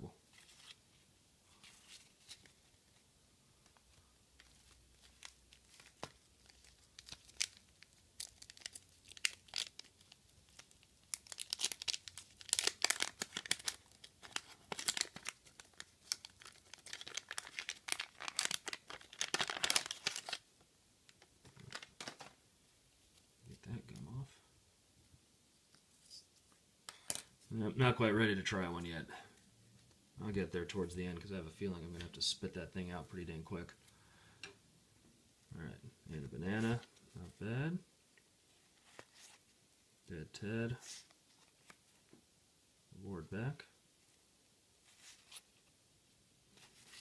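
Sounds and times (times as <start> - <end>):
wax paper wrapper tearing: 4.5 - 20.4.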